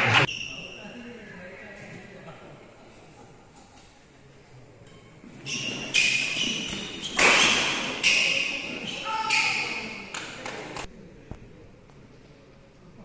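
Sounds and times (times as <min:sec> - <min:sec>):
shoe squeaks on court: 0:05.4 - 0:10.0
racket hitting shuttlecock: 0:05.9 - 0:08.4.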